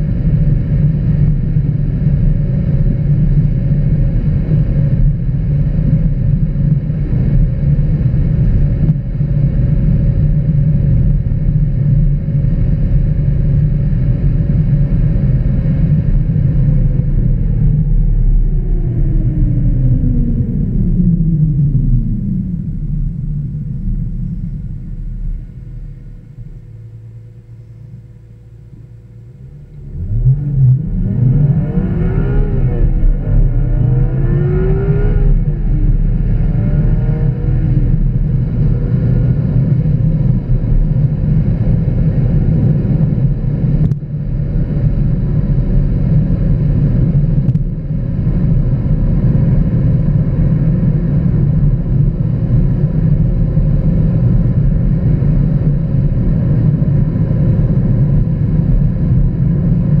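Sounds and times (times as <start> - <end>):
road noise: 13.9 - 43.9
car engine revving: 13.9 - 44.0.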